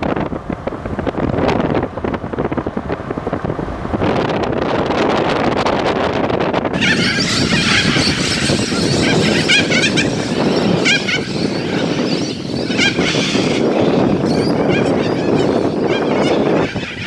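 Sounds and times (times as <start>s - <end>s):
wind noise rumble: 0.0s - 17.0s
cockatoos calling: 6.8s - 17.0s.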